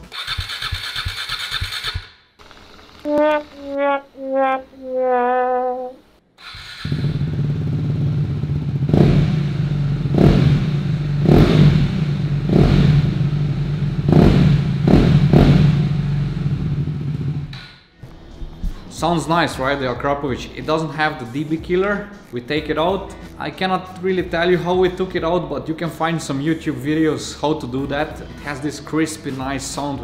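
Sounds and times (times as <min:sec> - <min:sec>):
held musical note: 0:03.1 - 0:06.0
motorcycle engine idling: 0:07.0 - 0:08.9.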